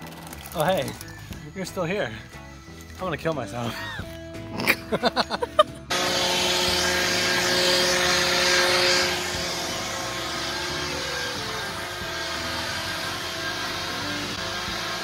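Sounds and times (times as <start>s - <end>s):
leaf blower running: 5.9s - 15.0s.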